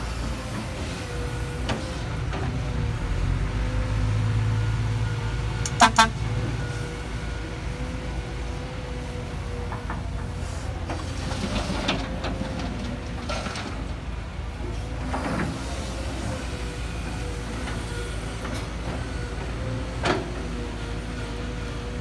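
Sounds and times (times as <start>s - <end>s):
excavator diesel engine rumbling: 0.0s - 22.0s
horn toots: 5.7s - 6.3s.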